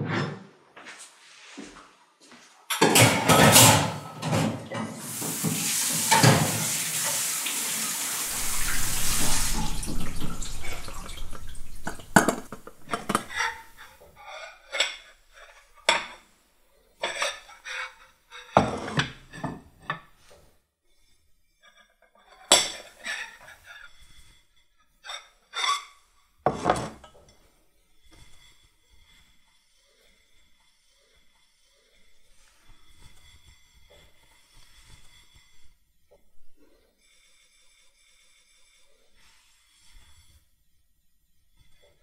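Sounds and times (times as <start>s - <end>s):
dishes and cutlery clinking: 2.7s - 7.1s, 8.3s - 16.2s, 21.6s - 24.3s, 25.0s - 28.6s
kitchen tap running into sink: 3.0s - 13.9s.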